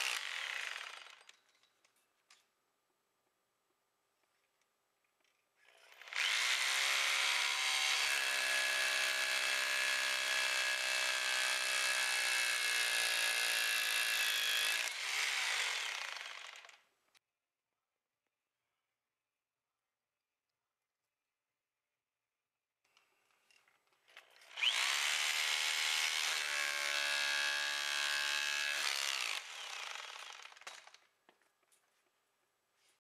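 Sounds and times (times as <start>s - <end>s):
rotary hammer on concrete: 5.1s - 16.9s, 22.9s - 31.5s.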